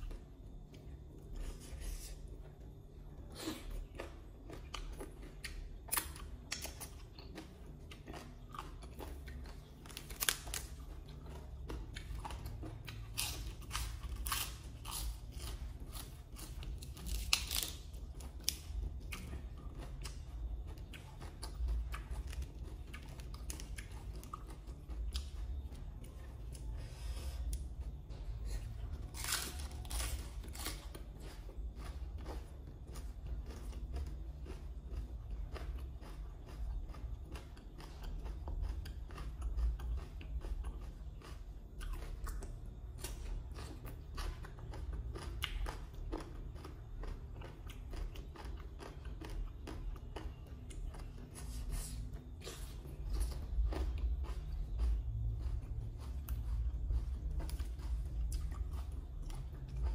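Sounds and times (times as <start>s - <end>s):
wet chewing: 3.6s - 59.9s
crisp crunching bites: 13.0s - 18.6s.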